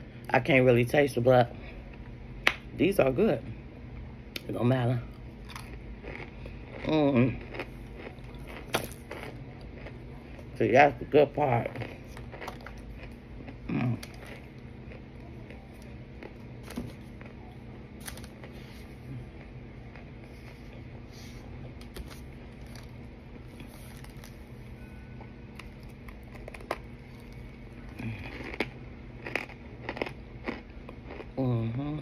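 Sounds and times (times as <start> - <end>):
low background hum: 0.0 - 32.0
person chewing: 5.1 - 10.5, 11.6 - 24.6, 25.2 - 31.6.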